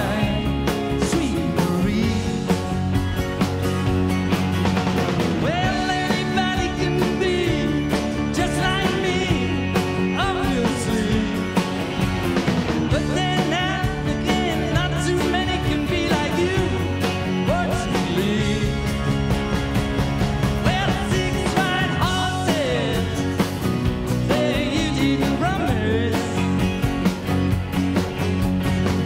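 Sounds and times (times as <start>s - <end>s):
man singing: 0.0s - 2.9s, 5.3s - 11.7s, 12.9s - 19.1s, 20.6s - 26.8s
bass guitar: 0.0s - 29.0s
drums: 0.0s - 29.0s
electric guitars: 0.0s - 29.0s.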